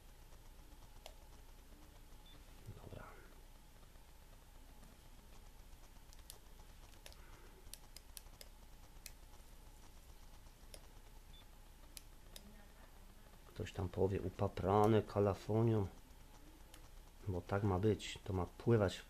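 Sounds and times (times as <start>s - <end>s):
faint steady hum: 0.0s - 19.0s
faint sharp clicks: 5.4s - 12.5s.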